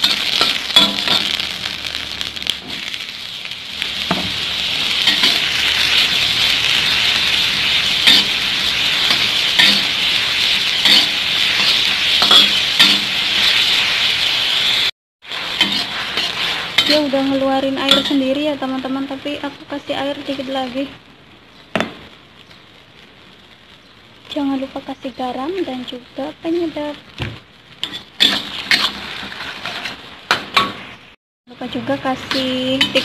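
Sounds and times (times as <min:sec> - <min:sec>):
metal spatula scraping a wok: 0:00.0 - 0:01.6, 0:04.0 - 0:18.4, 0:27.8 - 0:31.2, 0:32.0 - 0:33.0
mushrooms sizzling in hot oil: 0:00.0 - 0:33.0.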